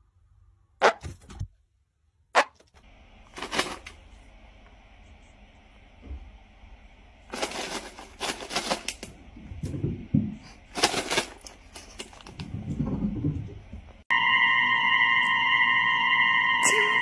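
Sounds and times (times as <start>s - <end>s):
treat bag crinkling rattle: 3.3s - 4.1s, 7.3s - 9.2s, 10.4s - 12.5s.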